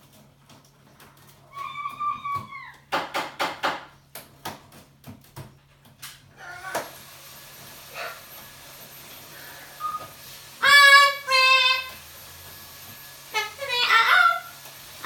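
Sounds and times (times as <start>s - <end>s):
parrot calls: 1.5s - 2.9s, 6.4s - 7.0s, 7.9s - 8.3s, 9.2s - 12.0s, 13.3s - 14.6s.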